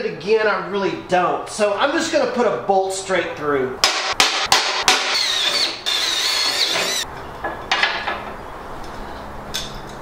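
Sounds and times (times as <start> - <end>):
drill whining through sheet metal: 4.9 - 7.0.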